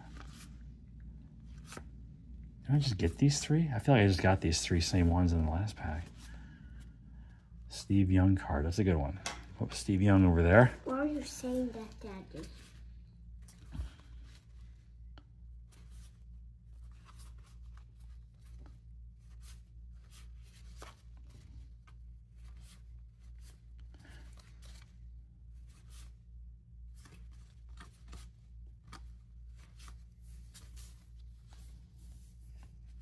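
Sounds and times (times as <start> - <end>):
cardboard cards flipped by hand: 1.4 - 2.1, 26.8 - 33.0.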